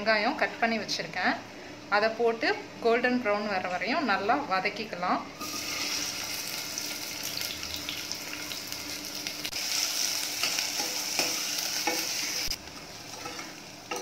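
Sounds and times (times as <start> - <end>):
onions sizzling in hot oil: 5.4 - 14.0.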